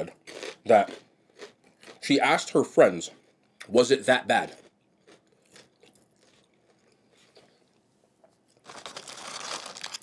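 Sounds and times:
faint chewing: 0:00.0 - 0:02.1, 0:04.4 - 0:08.7
crunch of biting fried chicken: 0:00.1 - 0:02.0.

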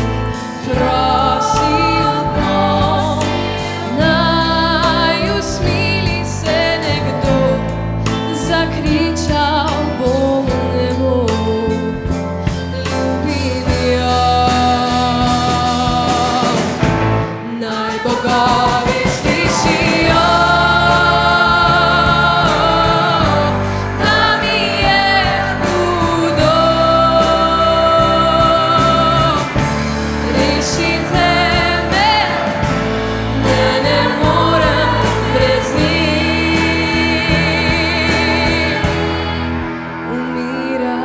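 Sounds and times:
bass: 0:00.0 - 0:41.0
drums: 0:00.0 - 0:41.0
keyboard: 0:00.0 - 0:41.0
choir singing held notes: 0:00.1 - 0:05.7, 0:17.6 - 0:41.0
electric guitar: 0:18.6 - 0:41.0.

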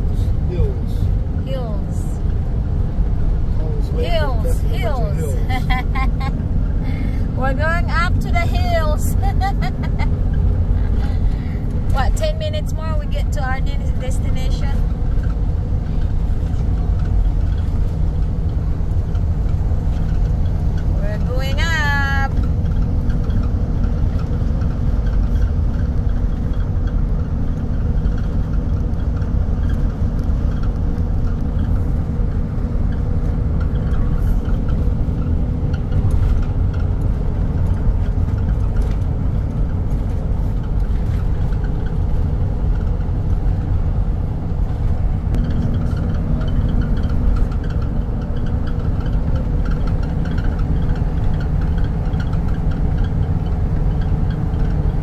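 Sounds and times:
engine and tyre rumble: 0:00.0 - 0:55.0.

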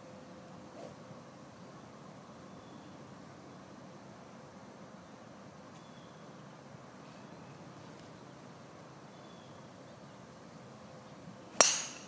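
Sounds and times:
faint outdoor background: 0:00.0 - 0:12.0
golf club striking ball: 0:11.6 - 0:12.0.

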